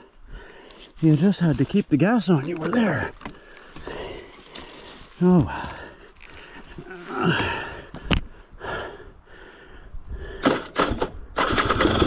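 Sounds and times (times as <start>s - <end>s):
person breathing hard: 0.0s - 1.0s, 3.2s - 10.7s.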